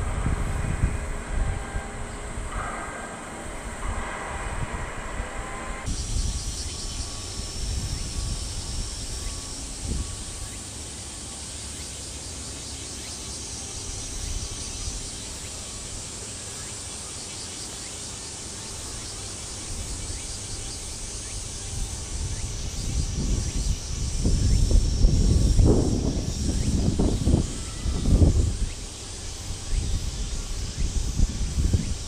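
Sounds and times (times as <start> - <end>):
low rumble: 0.0 - 10.4
insect drone: 0.0 - 32.0.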